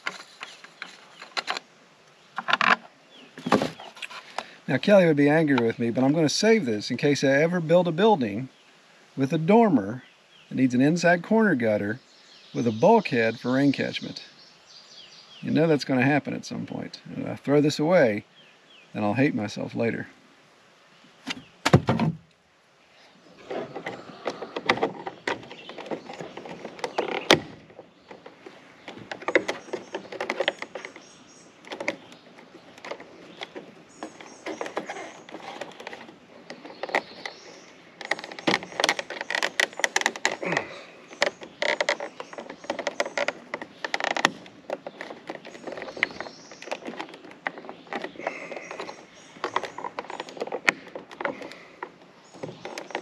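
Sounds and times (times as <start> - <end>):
gutter sections clicking and scraping: 0.0 - 7.2, 23.4 - 53.0.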